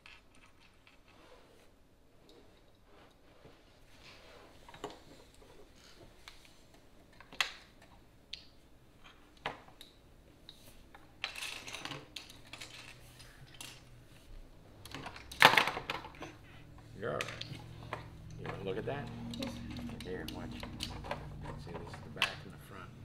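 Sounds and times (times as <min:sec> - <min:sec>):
plastic bricks clicking and clattering: 0:11.2 - 0:13.8.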